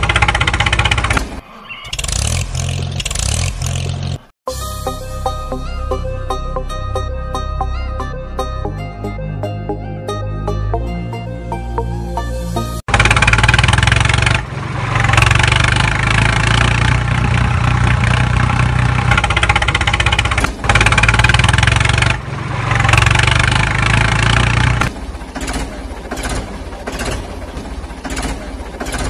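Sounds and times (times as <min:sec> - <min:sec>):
engine idling with knocks: 0:00.0 - 0:01.4, 0:12.9 - 0:29.0
tractor engine running: 0:00.0 - 0:04.3, 0:12.9 - 0:29.0.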